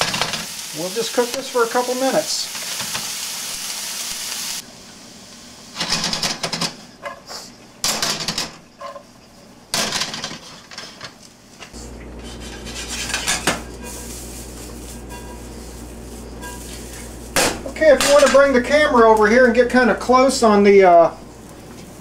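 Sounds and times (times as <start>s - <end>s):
steady low hum: 11.5s - 20.4s.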